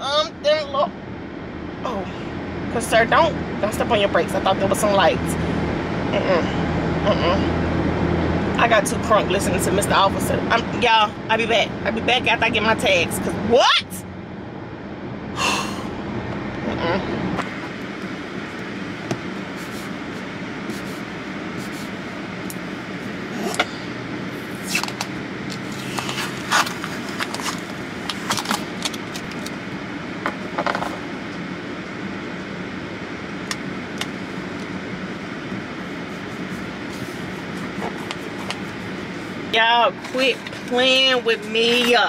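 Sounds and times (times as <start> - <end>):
car interior hum: 0.0 - 42.0
sticker scraping and crinkling: 24.6 - 29.6.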